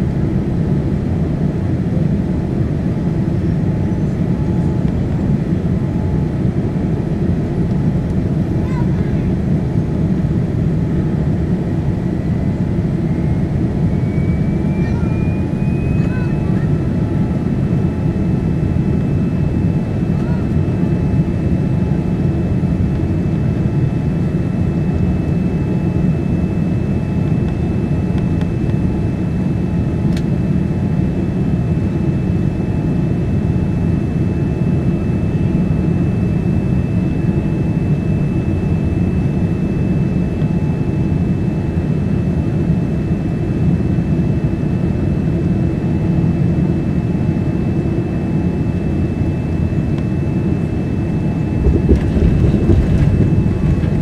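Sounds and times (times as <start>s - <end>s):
airplane cabin roar: 0.0s - 54.0s
faint high whine: 12.9s - 17.1s.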